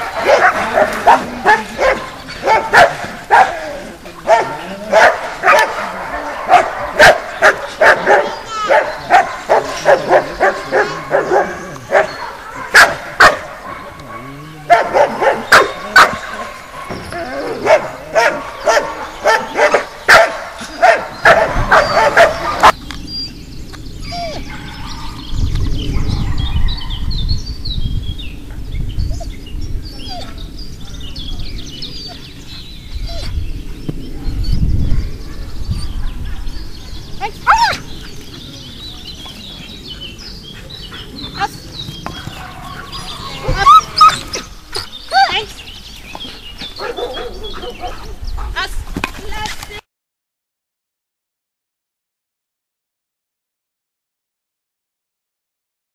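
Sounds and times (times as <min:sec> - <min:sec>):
dog barking: 0:00.0 - 0:03.6, 0:04.3 - 0:17.0, 0:17.6 - 0:22.8, 0:46.8 - 0:48.2.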